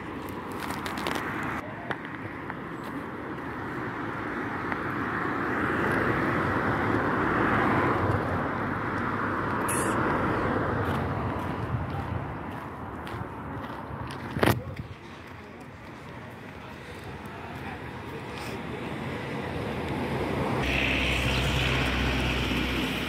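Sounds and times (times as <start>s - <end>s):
road vehicle passing: 0.0s - 23.0s.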